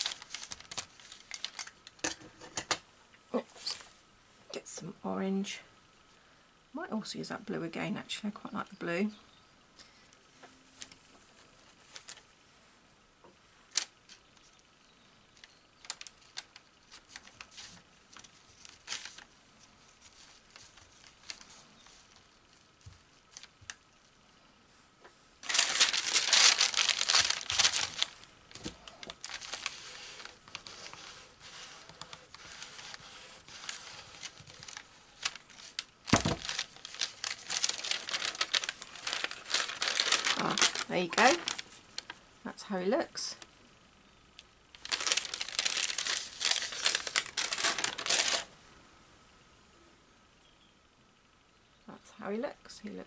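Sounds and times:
paper crinkling: 0.0s - 2.2s, 10.7s - 12.3s, 13.7s - 14.7s, 15.3s - 24.2s, 25.4s - 42.2s, 44.8s - 48.5s
fibres rustling: 0.0s - 4.0s, 9.8s - 12.4s, 13.2s - 42.3s, 44.7s - 48.6s.

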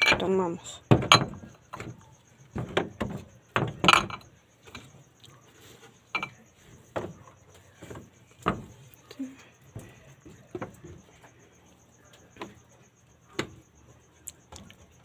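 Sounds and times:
glass jars and bottles knocking: 0.0s - 5.0s, 6.0s - 8.9s.

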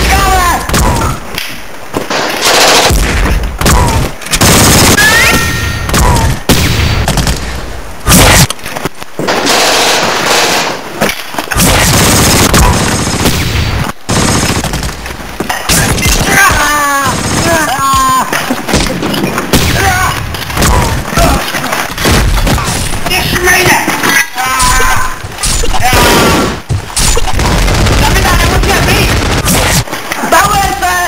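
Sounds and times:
automatic gunfire: 2.1s - 5.2s, 11.6s - 14.9s, 27.2s - 29.8s
people shouting: 4.8s - 6.4s, 15.7s - 18.3s, 22.5s - 26.2s.

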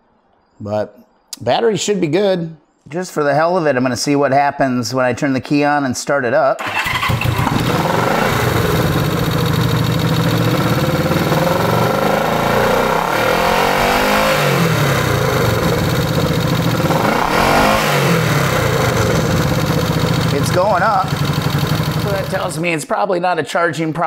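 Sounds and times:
motorcycle engine revving and idling: 6.6s - 22.6s.

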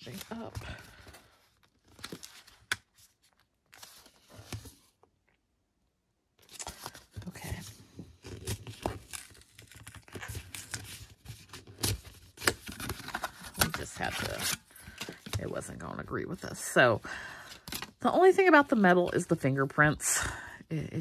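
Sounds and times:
card packaging tearing and rustling: 0.0s - 4.8s, 6.4s - 7.2s, 8.1s - 15.7s.

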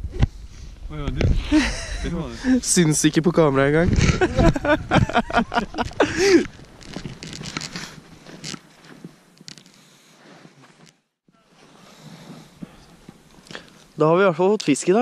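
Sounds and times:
clothing and gear rustling: 5.2s - 14.0s.

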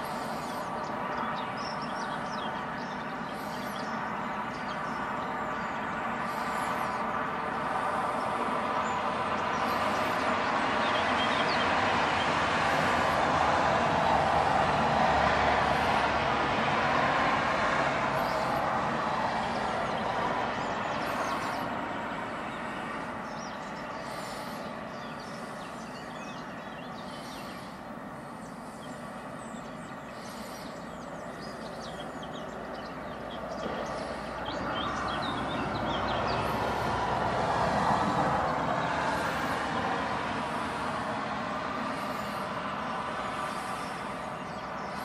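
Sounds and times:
distant road traffic: 0.0s - 45.0s
bird chirps: 8.8s - 11.8s, 22.5s - 36.8s.

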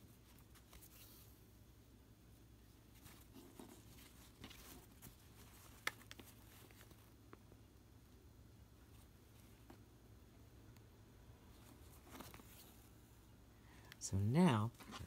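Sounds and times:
thread drawn through cloth: 0.0s - 1.4s.

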